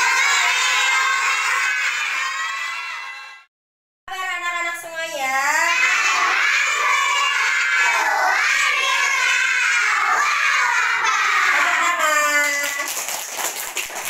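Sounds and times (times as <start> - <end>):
children singing together: 0.0 - 3.4, 5.7 - 11.8.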